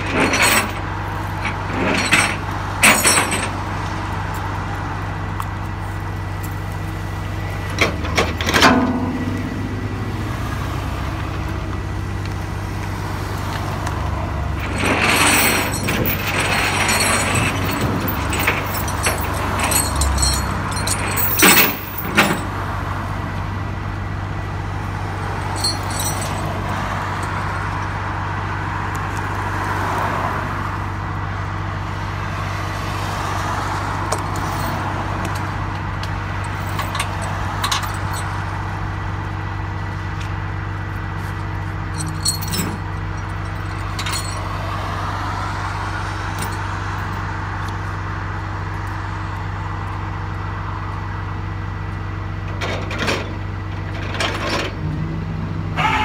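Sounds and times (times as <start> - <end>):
metal chains clanking: 0.0 - 3.7, 7.8 - 10.4, 14.5 - 22.6, 25.2 - 27.8, 34.0 - 35.5, 36.3 - 38.6, 41.9 - 45.3, 46.2 - 47.3
truck engine idling: 0.0 - 29.6, 33.6 - 54.5
road traffic passing: 0.0 - 56.0.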